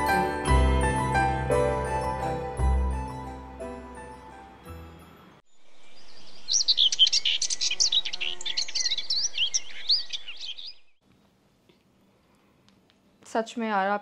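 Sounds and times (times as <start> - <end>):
background music: 0.0 - 5.4
small birds chirping: 5.5 - 11.0.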